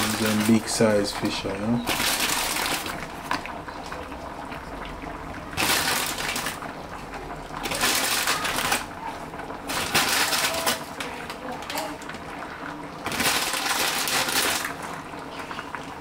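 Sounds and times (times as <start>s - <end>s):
fish simmering in a frying pan: 0.0s - 16.0s
crackers being handled: 9.6s - 11.9s.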